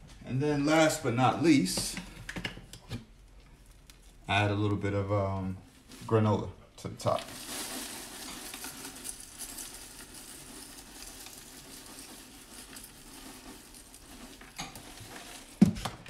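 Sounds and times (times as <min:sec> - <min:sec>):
granola pouring into bowl: 0:07.0 - 0:16.0.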